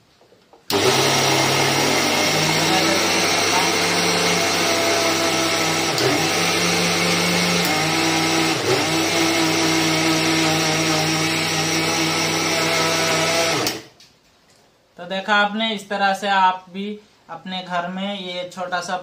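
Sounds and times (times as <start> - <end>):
mixer grinder motor whining: 0.7 - 13.9.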